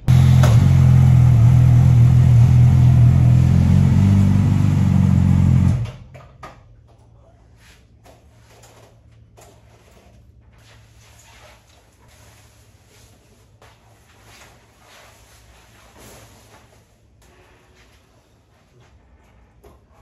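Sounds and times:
motorcycle engine running: 0.0s - 6.0s.

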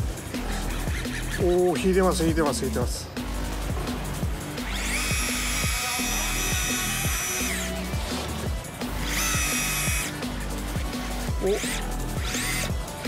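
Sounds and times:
background music: 0.0s - 13.0s
electric reel motor whining: 4.5s - 13.0s.

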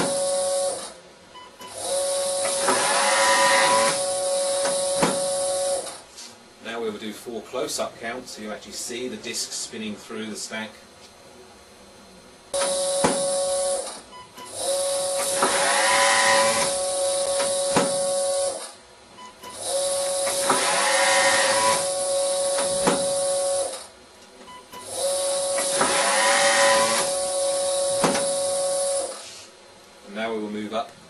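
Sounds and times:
machine whine: 0.0s - 1.0s, 1.6s - 6.0s, 12.5s - 18.8s, 19.4s - 24.0s, 24.7s - 29.2s.

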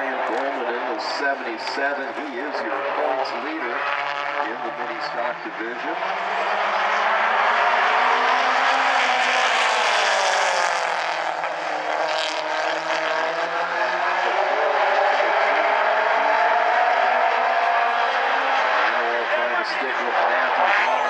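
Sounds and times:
race car engines: 0.0s - 21.0s.

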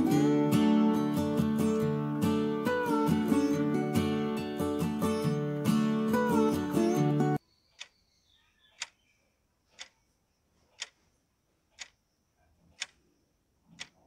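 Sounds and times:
guitar background music: 0.0s - 7.4s
clock ticking: 8.8s - 9.0s, 9.7s - 10.1s, 10.8s - 11.1s, 11.7s - 12.0s, 12.7s - 14.0s.

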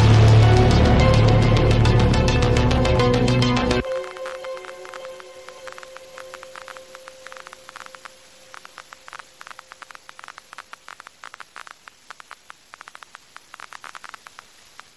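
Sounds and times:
crackling clicks: 0.0s - 14.9s
steady static hiss: 0.0s - 14.9s.

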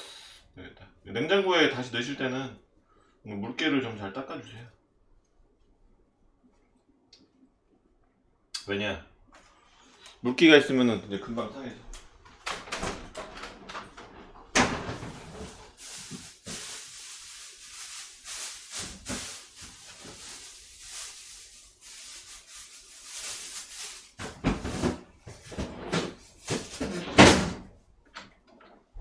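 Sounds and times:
cupboard door opening and shutting: 12.4s - 15.8s, 24.2s - 28.3s
rustling: 14.9s - 27.1s.

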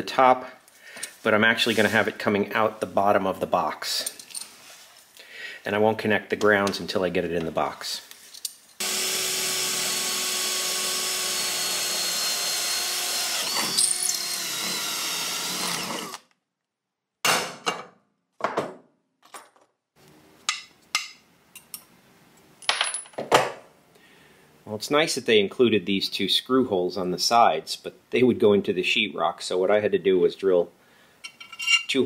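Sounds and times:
power drill drilling steel: 8.8s - 16.2s.

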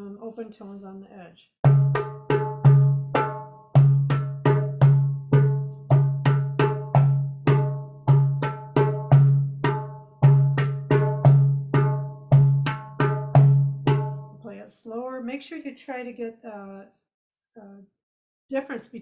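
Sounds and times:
hand drum played with bare hands: 1.7s - 14.3s.

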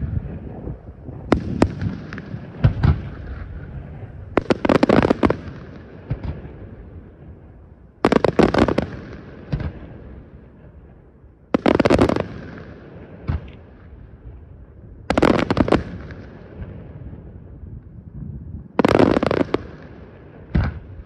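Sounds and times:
low rumble with faint crackle: 13.2s - 18.8s.

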